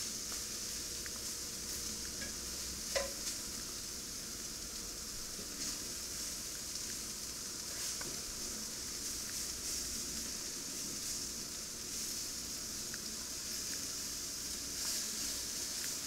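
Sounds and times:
meat sizzling in a skillet: 0.0 - 16.0
metal tongs clicking on pan: 2.2 - 3.2.

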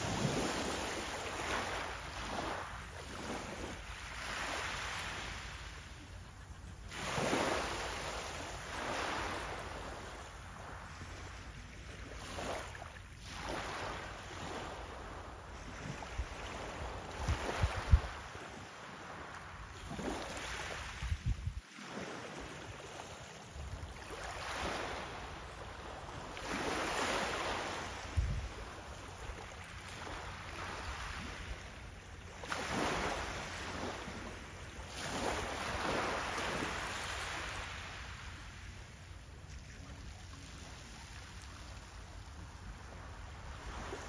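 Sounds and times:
wind thumps on microphone: 17.2 - 18.2, 21.0 - 21.6, 28.1 - 28.6.

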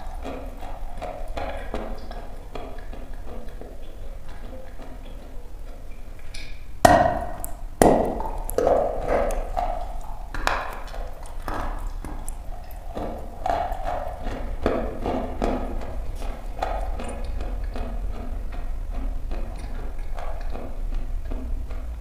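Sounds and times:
chalk crunching when chewed: 7.3 - 18.7.

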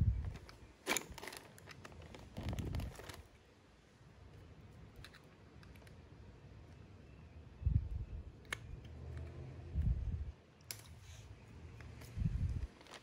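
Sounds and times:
plastic rustle: 0.2 - 3.4, 12.6 - 13.0.

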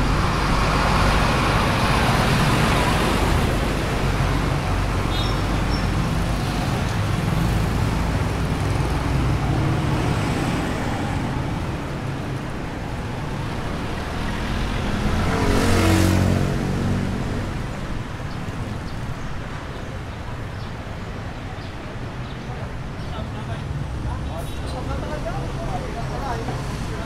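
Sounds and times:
traffic rumble: 0.0 - 27.0
vehicle passing close: 13.5 - 18.2.

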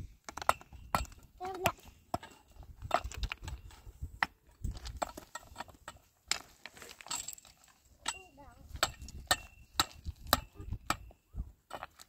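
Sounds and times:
stones knocking together: 0.2 - 7.5
iron bar and pick striking ground: 0.2 - 12.0.

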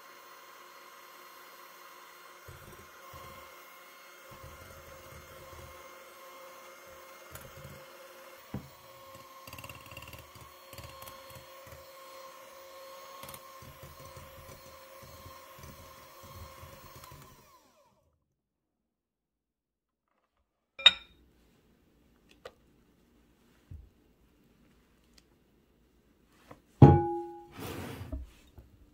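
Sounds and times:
electric hand mixer running: 0.0 - 18.1.

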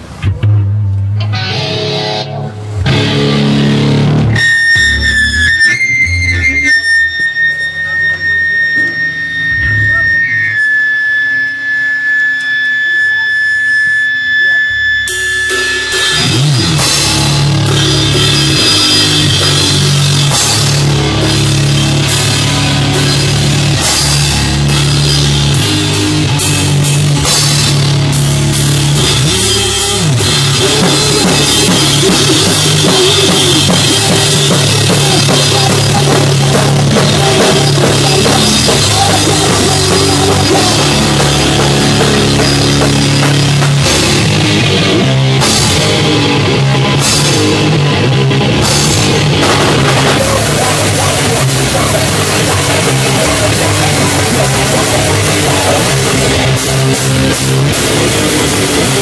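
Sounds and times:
punk band playing live: 0.0 - 59.0
steady high tone: 1.3 - 59.0
cymbal crashes: 7.8 - 46.0.

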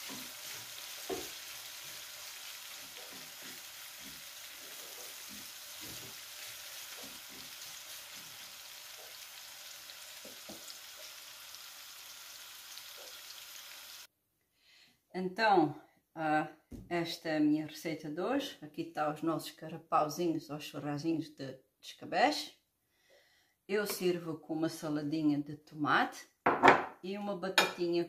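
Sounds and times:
spoon scraping and tapping pan: 0.0 - 2.0, 2.7 - 8.4, 10.2 - 10.8
onions sizzling in a frying pan: 0.0 - 14.1.

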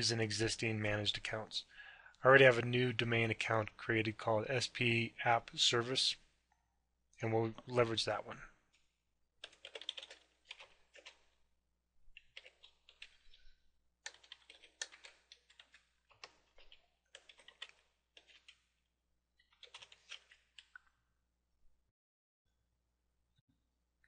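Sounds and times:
faint keyboard typing: 9.4 - 11.4, 12.1 - 18.7, 19.4 - 21.0.

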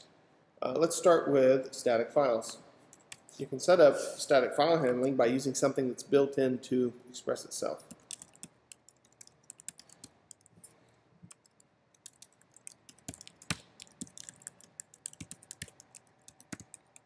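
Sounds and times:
typing on computer keyboard: 7.9 - 10.6, 11.3 - 17.0.

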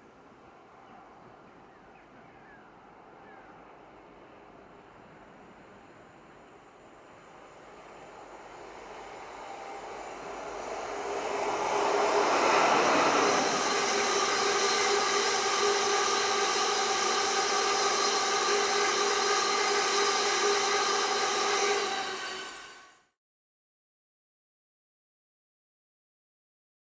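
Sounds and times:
diesel locomotive passing: 2.4 - 23.2.

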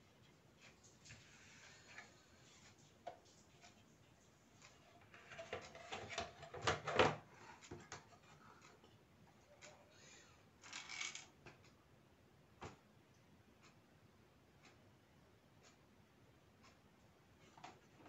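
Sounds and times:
plastic parts clicking and scraping: 5.0 - 8.8, 10.6 - 11.3.

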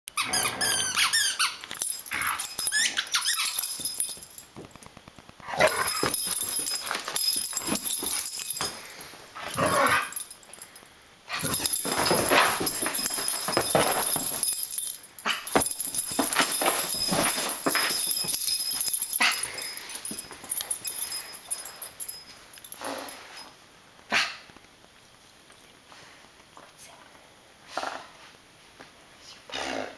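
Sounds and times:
dog squealing and whining: 0.2 - 1.6.

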